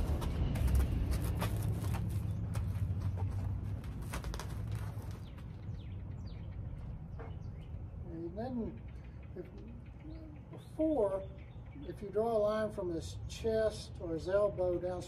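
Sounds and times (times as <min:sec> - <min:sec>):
horse hooves on sand: 0:00.0 - 0:07.6
steady low rumble: 0:00.0 - 0:10.5
faint bird chirps: 0:05.2 - 0:12.1.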